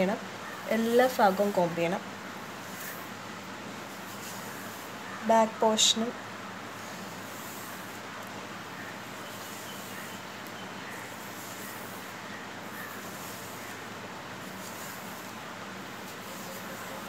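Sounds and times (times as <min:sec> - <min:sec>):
background hiss: 0:00.0 - 0:17.0
comb rustling through hair: 0:02.5 - 0:03.2, 0:03.8 - 0:05.2, 0:06.7 - 0:17.0.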